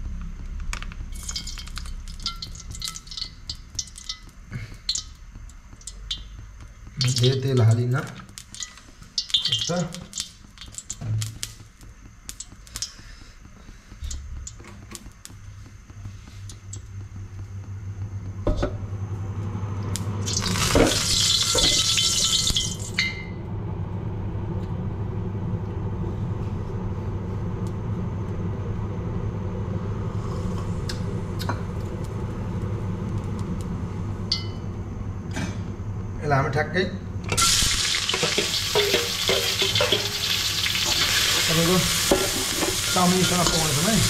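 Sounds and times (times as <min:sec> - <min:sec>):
gas burner hum and rush: 0:00.0 - 0:44.0
loud hiss: 0:37.4 - 0:44.0.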